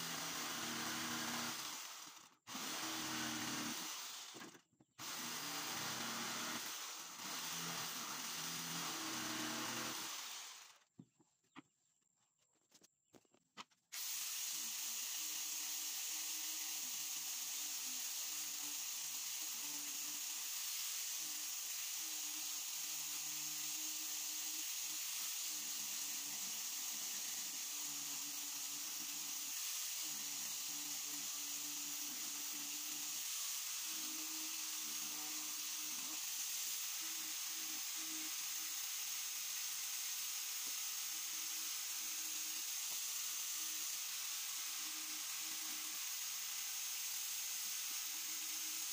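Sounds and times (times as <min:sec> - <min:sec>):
angle grinder sanding wood: 0:14.0 - 0:48.9.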